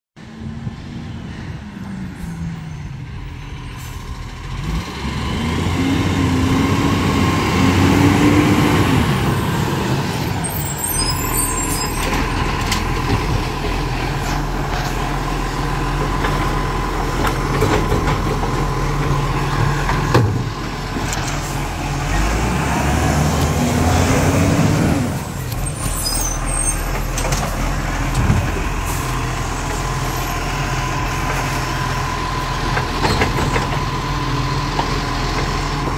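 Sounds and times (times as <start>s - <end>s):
garbage truck diesel engine revving: 4.2s - 35.9s.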